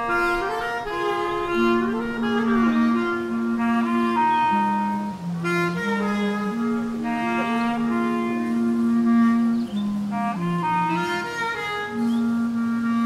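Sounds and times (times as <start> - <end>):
bass clarinets playing: 0.0 - 13.0.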